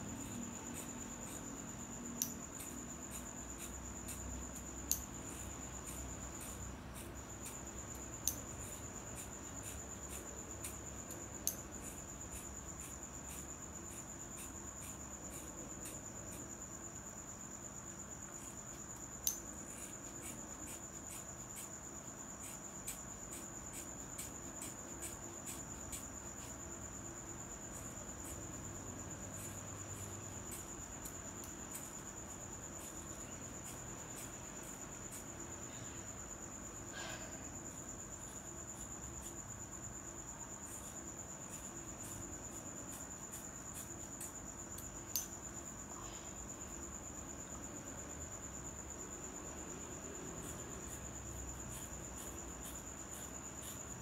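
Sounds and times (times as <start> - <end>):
high-pitched insect trill: 0.0 - 54.0
scissors snipping hair: 2.2 - 2.8, 3.6 - 6.6, 11.4 - 11.7, 19.2 - 19.4.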